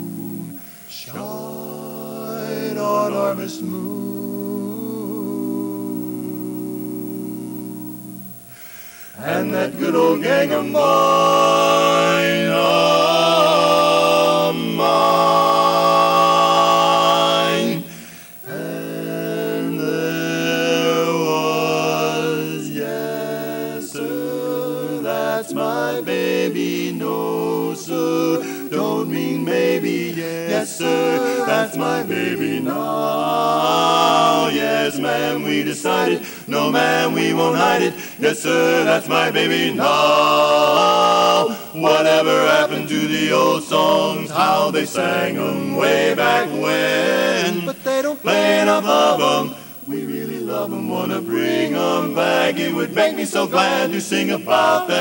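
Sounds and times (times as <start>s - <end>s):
male quartet singing a cappella: 0.0s - 55.0s.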